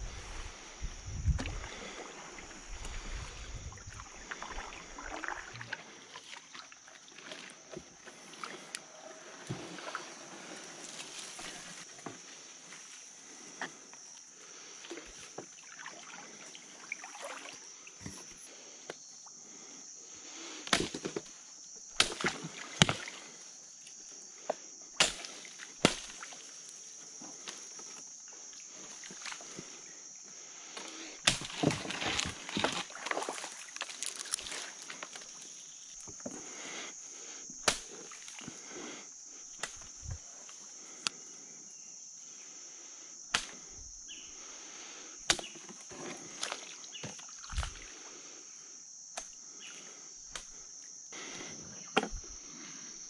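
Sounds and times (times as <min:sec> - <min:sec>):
wind rumble on microphone: 0:00.0 - 0:01.8, 0:02.6 - 0:04.0
paddle splashes: 0:01.2 - 0:11.9, 0:14.8 - 0:18.2, 0:30.8 - 0:36.4
water sloshing: 0:01.2 - 0:11.9, 0:14.9 - 0:18.2, 0:31.3 - 0:36.4.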